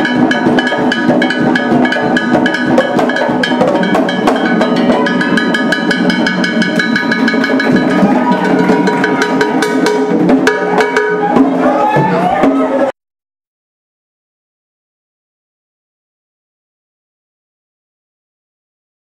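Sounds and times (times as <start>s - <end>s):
fast drum rhythm: 0.0s - 12.9s.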